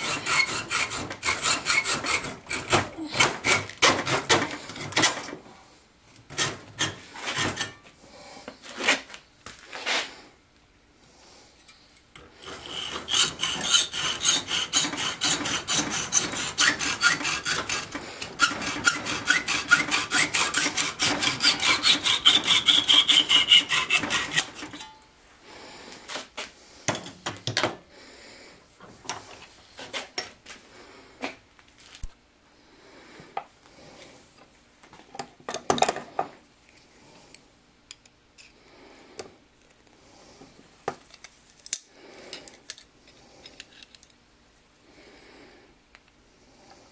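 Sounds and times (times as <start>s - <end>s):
hacksaw cutting metal tube: 0.0s - 5.4s, 6.3s - 7.8s, 12.2s - 25.0s.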